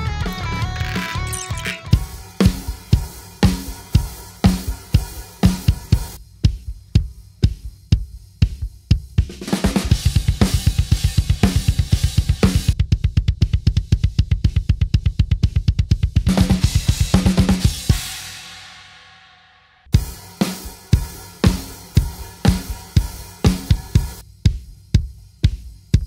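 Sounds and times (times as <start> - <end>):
drum kit with cymbals: 0.0 - 26.0
bass drum kicks: 5.4 - 17.8, 21.0 - 26.0.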